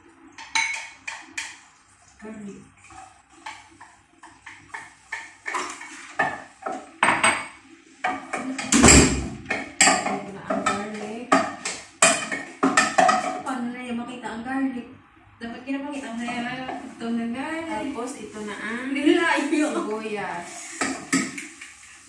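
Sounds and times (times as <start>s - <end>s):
spoon knocking against cooking pot: 3.4s - 13.5s.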